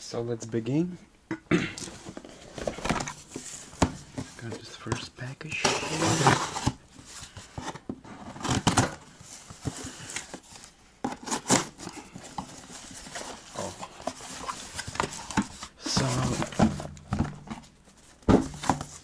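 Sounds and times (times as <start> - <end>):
cardboard rustling and knocking: 1.8 - 4.5, 7.4 - 19.0
box scraping against cardboard: 5.6 - 6.8.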